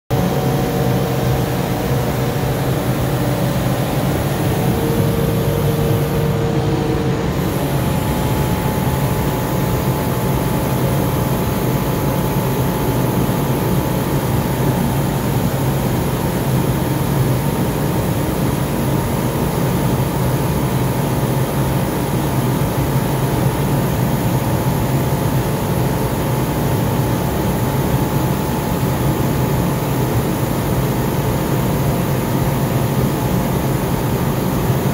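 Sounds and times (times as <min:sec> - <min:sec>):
low machine drone: 0:00.1 - 0:19.7.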